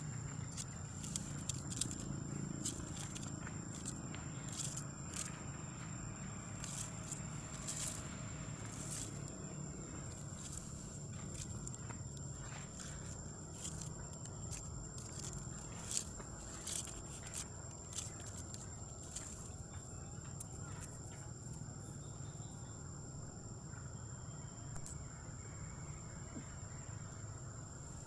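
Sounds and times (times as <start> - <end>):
high-pitched insect drone: 0.0 - 28.0
sharp dry clicks and crackles: 0.3 - 5.4, 10.1 - 19.6.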